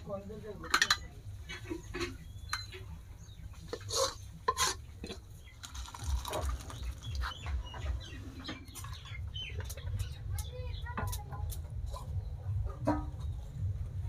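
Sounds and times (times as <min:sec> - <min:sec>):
food scraped into steel bowl: 0:03.7 - 0:05.2.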